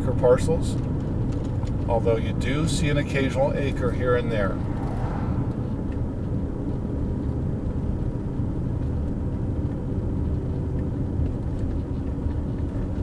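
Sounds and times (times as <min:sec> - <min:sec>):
car road and engine noise: 0:00.0 - 0:13.0.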